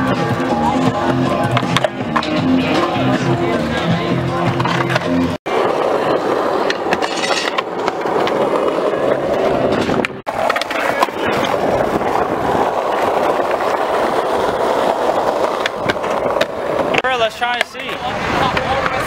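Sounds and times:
skateboard clacks: 0:00.0 - 0:19.0
skateboard wheels rolling on asphalt: 0:00.0 - 0:19.0.

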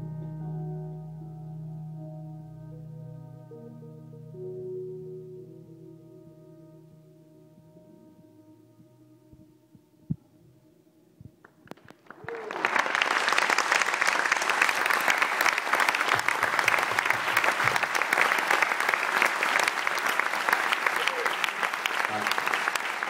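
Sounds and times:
audience applause: 0:11.8 - 0:23.0.

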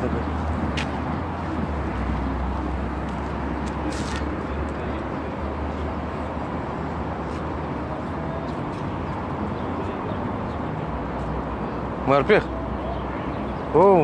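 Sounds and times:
brief rustle: 0:03.8 - 0:04.3.

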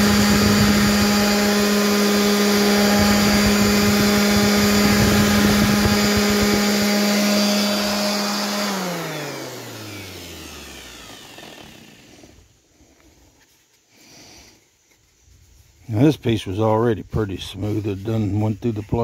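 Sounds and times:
electric sander running: 0:00.0 - 0:12.5
sander motor winding down: 0:00.0 - 0:12.5.

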